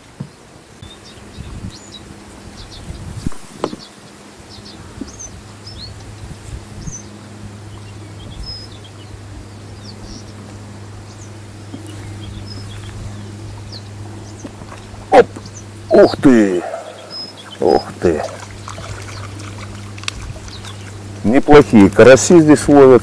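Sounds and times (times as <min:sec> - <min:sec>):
small birds chirping: 0:00.0 - 0:22.9
steady low hum: 0:00.0 - 0:23.0.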